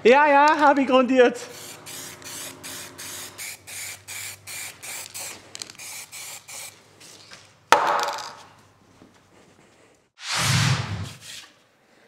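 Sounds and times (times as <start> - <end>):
paint spraying in hissing bursts: 1.4 - 6.8
short rush of noise: 10.2 - 11.4.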